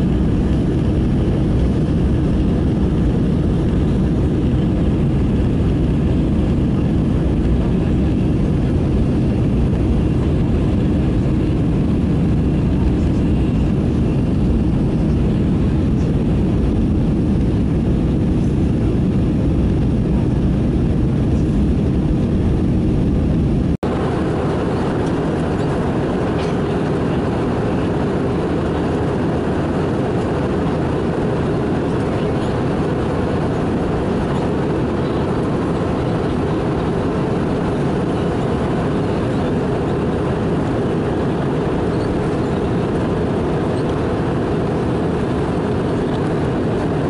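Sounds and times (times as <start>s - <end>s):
jet engine roar in cabin: 0.0s - 47.0s.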